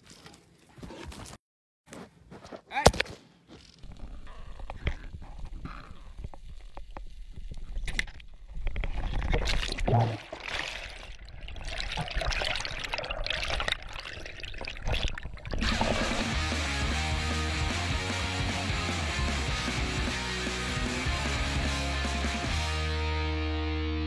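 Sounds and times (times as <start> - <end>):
water sloshing and bubbling: 3.9 - 16.2
music with steady beat: 16.0 - 23.3.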